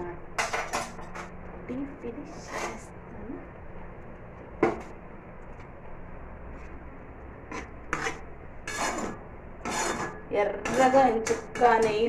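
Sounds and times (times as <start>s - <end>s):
faint low hum: 0.0s - 12.0s
utensils scraping a pan: 2.3s - 2.9s, 7.5s - 12.0s.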